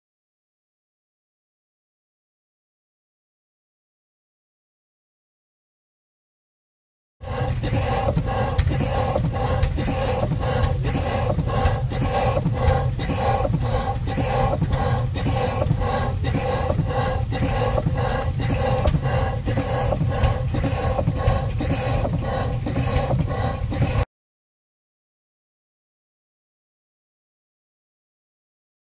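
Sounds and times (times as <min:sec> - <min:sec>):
hissing exhaust steam: 0:07.2 - 0:24.0
steam engine running: 0:07.2 - 0:24.1.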